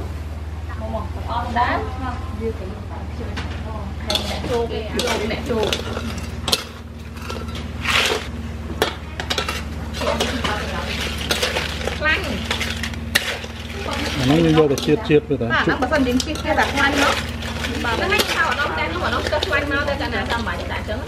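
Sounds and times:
steady low hum: 0:00.0 - 0:21.0
voices: 0:00.6 - 0:07.8, 0:08.7 - 0:21.0
spatula scraping metal wok: 0:04.0 - 0:21.0
crab shells clattering: 0:04.1 - 0:20.9.

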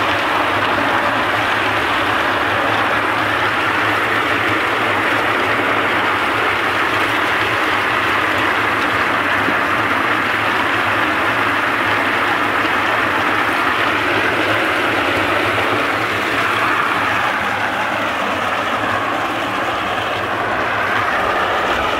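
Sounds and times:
low motor hum: 0:00.0 - 0:21.9
water spraying: 0:00.0 - 0:21.9.

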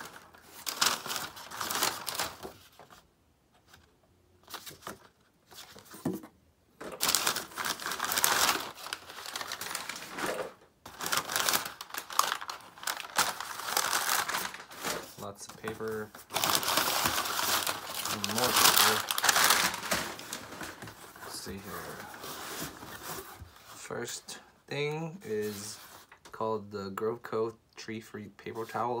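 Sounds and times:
packing paper crinkling: 0:00.0 - 0:03.0, 0:06.9 - 0:23.7.

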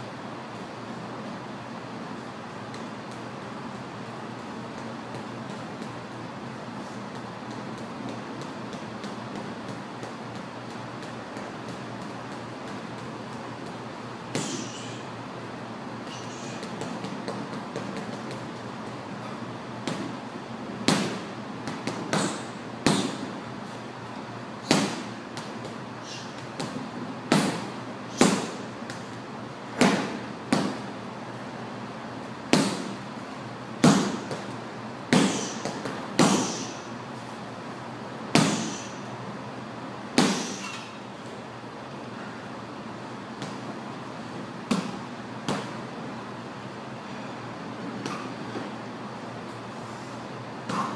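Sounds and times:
boxing gloves punching heavy bag: 0:14.3 - 0:15.0, 0:20.9 - 0:23.3, 0:24.6 - 0:28.7, 0:29.8 - 0:30.8, 0:32.5 - 0:33.0, 0:33.8 - 0:34.5, 0:35.1 - 0:36.8, 0:38.3 - 0:39.0.

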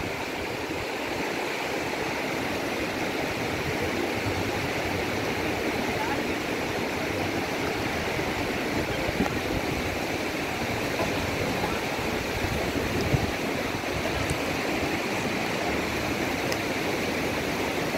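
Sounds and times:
river water rushing over rocks: 0:00.0 - 0:17.9
soft knocks: 0:10.9 - 0:11.8.

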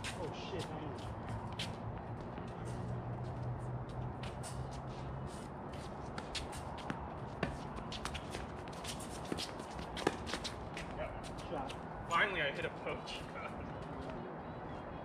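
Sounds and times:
shoes scuffing on hard court: 0:05.3 - 0:11.4.

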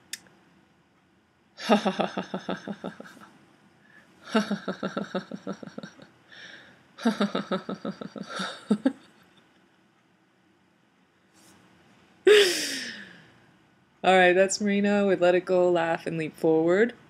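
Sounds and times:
woman forced laughter: 0:01.6 - 0:03.2, 0:04.3 - 0:06.0, 0:12.3 - 0:13.1
woman breathing in: 0:06.3 - 0:06.8, 0:12.3 - 0:13.4.

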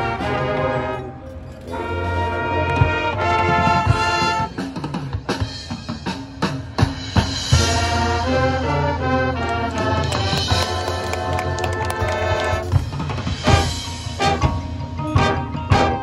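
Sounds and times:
marching band playing: 0:00.0 - 0:16.0.

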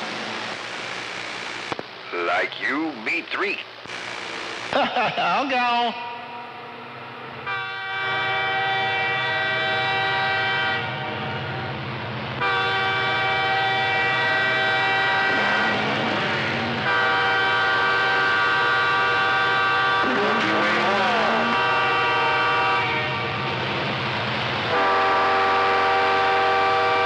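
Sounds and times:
train horn over radio: 0:05.9 - 0:11.8, 0:12.4 - 0:23.5, 0:24.7 - 0:27.0.

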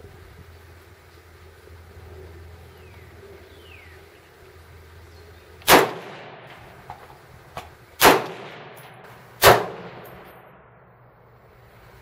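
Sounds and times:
rifle shots with echo: 0:05.7 - 0:06.7, 0:08.0 - 0:10.7.

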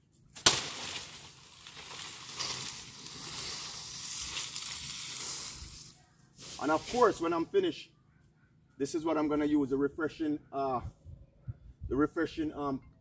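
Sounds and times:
palm frond scraping on concrete: 0:00.0 - 0:07.2
sharp crack: 0:00.3 - 0:05.4.

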